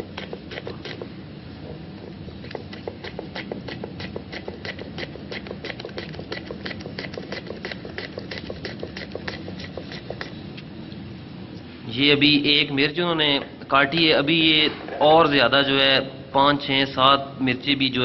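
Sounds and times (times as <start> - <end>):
knife chopping on wooden board: 0.0 - 1.1, 2.0 - 10.3.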